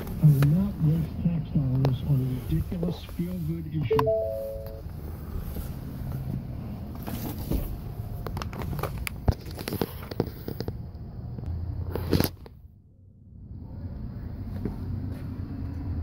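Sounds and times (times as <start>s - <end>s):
short three-note tone: 3.9s - 4.8s.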